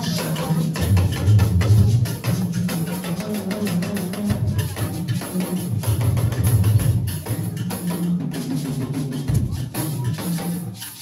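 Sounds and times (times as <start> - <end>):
dance music with drums: 0.0 - 11.0.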